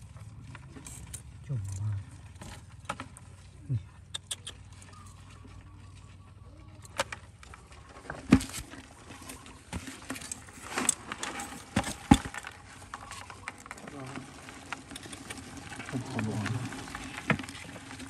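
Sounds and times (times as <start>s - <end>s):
plastic bucket knocking on rocks: 6.9s - 18.0s.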